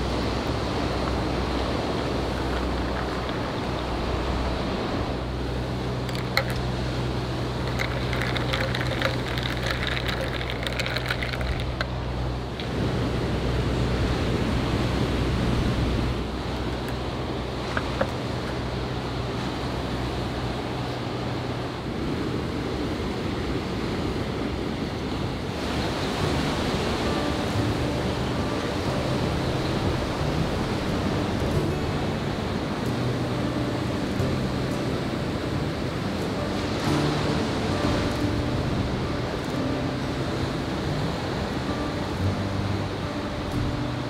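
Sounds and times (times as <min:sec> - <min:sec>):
low rumble of sea and wind: 0:00.0 - 0:44.0
ocean surf washing in: 0:00.0 - 0:44.0
straw clinking ice in glass: 0:06.1 - 0:06.6, 0:07.6 - 0:11.9.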